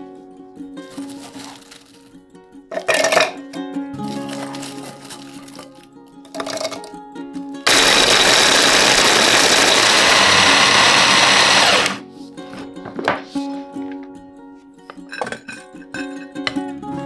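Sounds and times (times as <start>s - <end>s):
light background music: 0.0s - 7.7s, 11.6s - 17.0s
electric food chopper grinding: 7.7s - 12.0s.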